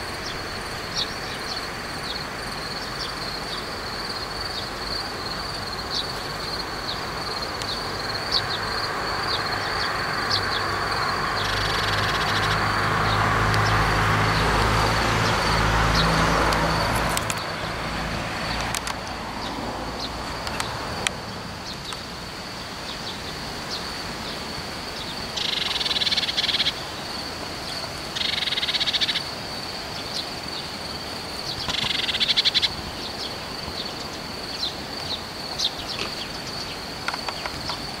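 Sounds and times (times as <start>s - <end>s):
thin bird calls: 25.0s - 26.8s, 27.7s - 29.3s, 31.4s - 37.9s.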